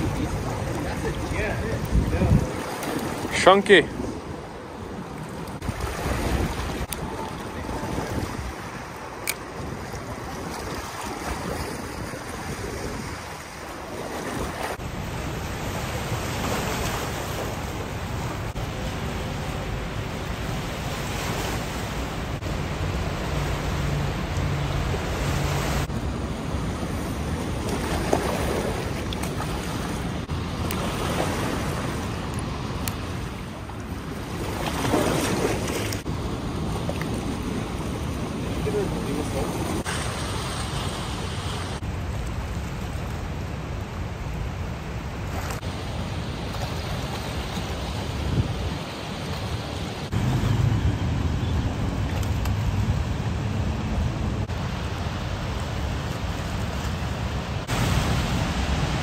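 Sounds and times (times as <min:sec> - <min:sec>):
wind buffeting microphone: 0:00.0 - 0:14.9
river water rushing and splashing: 0:00.0 - 0:59.0.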